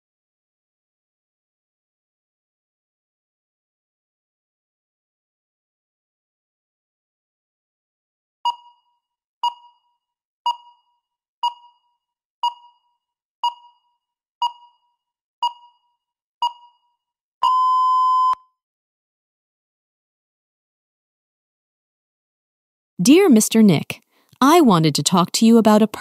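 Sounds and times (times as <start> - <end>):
timer short beeps: 8.5 - 18.4
timer long beep: 10.5 - 18.4.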